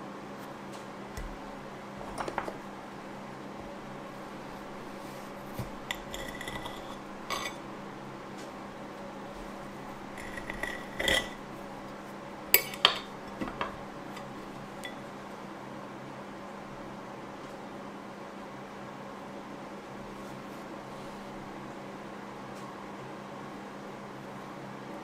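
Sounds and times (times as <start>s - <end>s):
knife scraping a plate: 4.6s - 7.7s, 9.3s - 11.9s, 12.5s - 15.0s.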